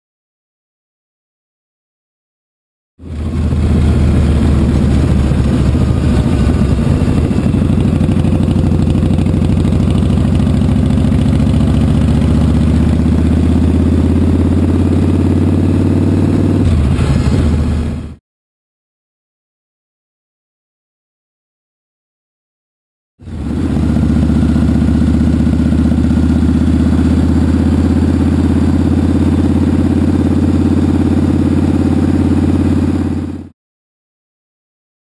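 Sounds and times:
motorcycle engine and exhaust: 3.0s - 18.2s, 23.2s - 33.5s.

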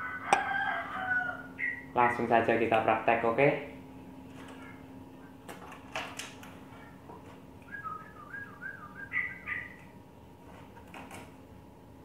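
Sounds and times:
bird calling: 1.3s - 2.1s, 7.7s - 9.8s.

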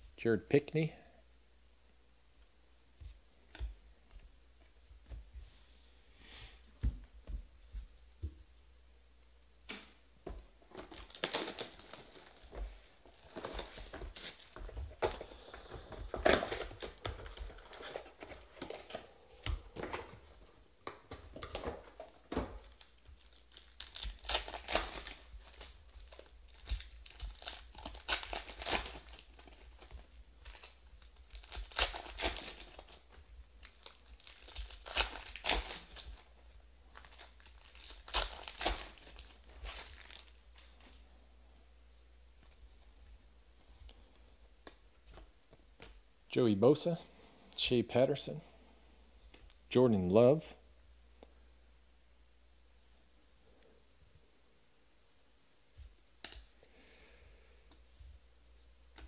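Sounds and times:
foil wrappers crinkling and tearing: 10.6s - 20.2s, 21.1s - 41.0s.

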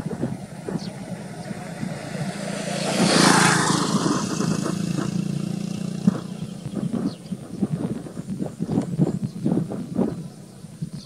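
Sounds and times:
vehicle passing by: 0.0s - 10.3s.

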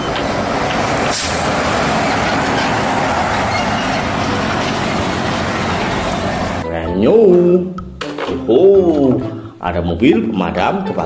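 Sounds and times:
truck driving past: 0.0s - 6.6s.

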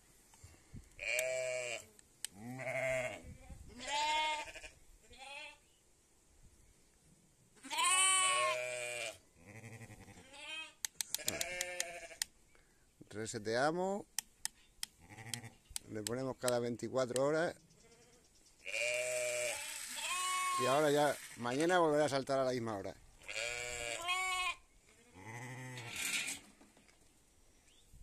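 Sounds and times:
sheep and lambs bleating: 1.0s - 5.6s, 7.6s - 12.3s, 15.0s - 15.7s, 17.8s - 21.4s, 23.2s - 26.2s
plastic timer dial clicking: 10.8s - 11.9s.

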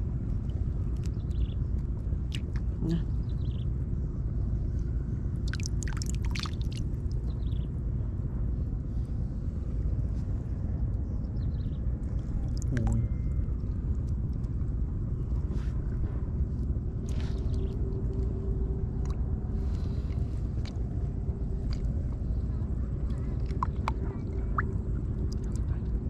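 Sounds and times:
faint steady hum: 0.0s - 26.0s
low steady rumble: 0.0s - 26.0s.

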